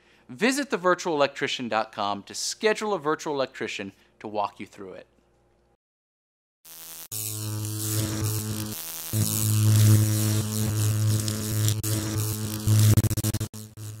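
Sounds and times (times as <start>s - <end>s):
electric buzz with crackling static: 6.7s - 14.0s.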